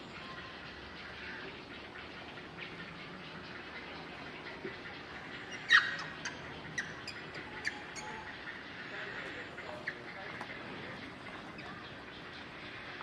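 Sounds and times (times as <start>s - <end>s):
animal squawk: 5.4s - 8.5s.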